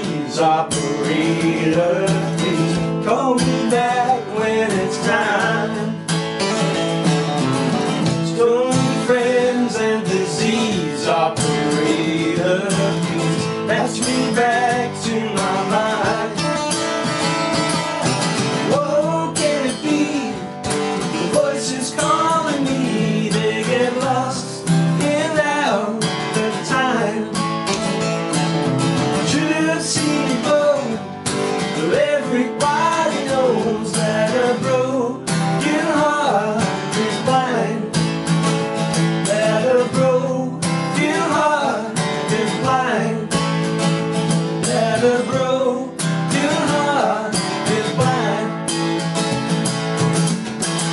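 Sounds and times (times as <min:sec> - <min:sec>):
man singing: 0:00.0 - 0:06.2, 0:08.0 - 0:27.6, 0:29.0 - 0:38.1, 0:39.1 - 0:43.9, 0:44.5 - 0:48.9
acoustic guitars playing: 0:00.0 - 0:50.9.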